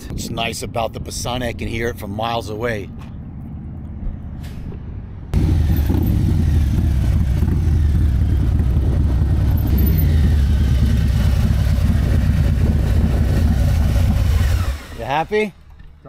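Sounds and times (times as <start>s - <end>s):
motorcycle engine running loud: 5.4s - 14.9s.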